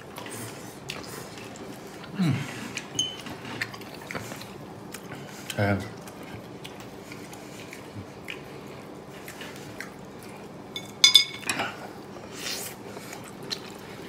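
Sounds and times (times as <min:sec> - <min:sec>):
dishes clinking: 0:10.8 - 0:11.7.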